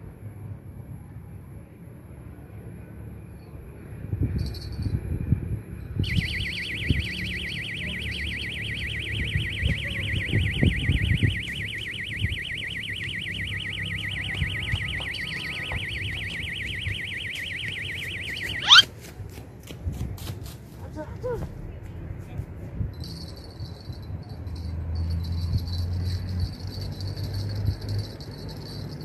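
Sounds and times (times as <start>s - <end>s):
rising electronic chirp: 6.0s - 18.9s
warbling electronic alarm tone: 6.0s - 18.9s.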